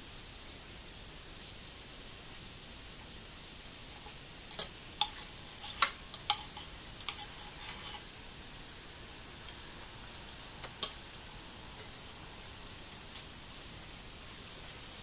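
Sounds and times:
faint steady hiss: 0.0 - 15.0
cutlery clinking on ceramic plate: 4.0 - 8.0, 10.6 - 11.0.

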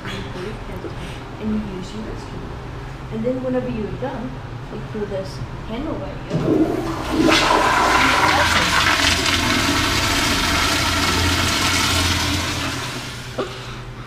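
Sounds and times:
toilet flushing: 6.3 - 14.0.

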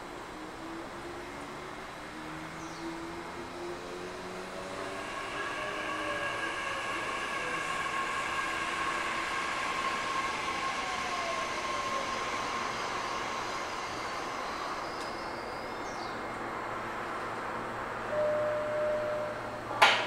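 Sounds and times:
electric train humming: 0.0 - 20.0
high whine tones: 3.2 - 17.2, 17.9 - 19.8.

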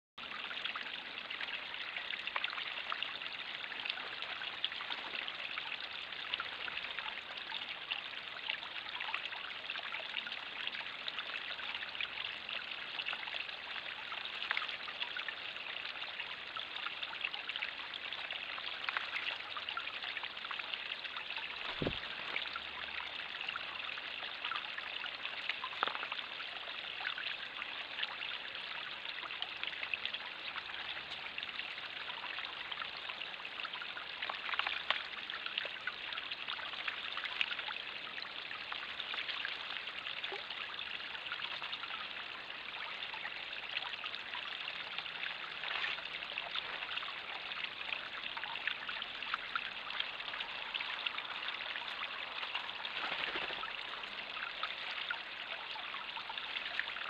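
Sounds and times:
waterfall trickling into pond: 0.2 - 57.0.

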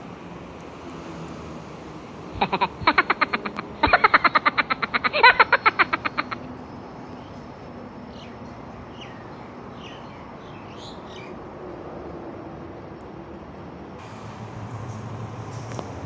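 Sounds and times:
steady background noise: 0.0 - 16.0
birds chirping: 2.3 - 11.4.

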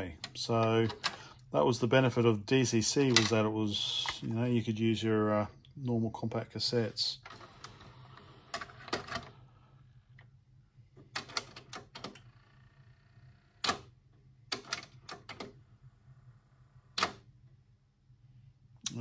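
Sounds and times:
cassette tray whirring: 0.0 - 1.3, 7.1 - 9.4, 11.0 - 17.3
tape mechanism clicking and clunking: 0.0 - 1.3, 3.0 - 4.2, 7.2 - 9.3, 14.5 - 15.6, 16.9 - 17.2
faint motor hum: 0.0 - 19.0.

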